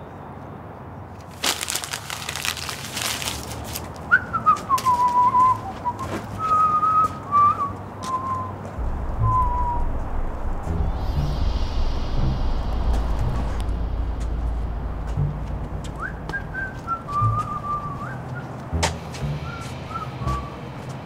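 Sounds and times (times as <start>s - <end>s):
rustling: 1.2s - 4.0s
man whistling a tune: 4.1s - 10.0s, 15.9s - 21.0s
low rumble: 8.7s - 21.0s.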